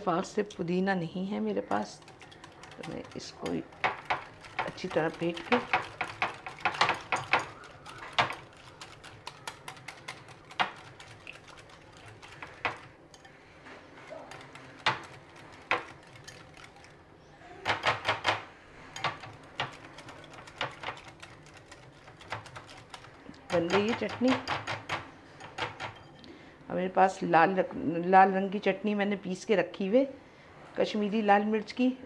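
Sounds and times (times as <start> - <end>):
whisk clicking against glass bowl: 1.7 - 13.3, 14.2 - 17.0, 19.0 - 26.2.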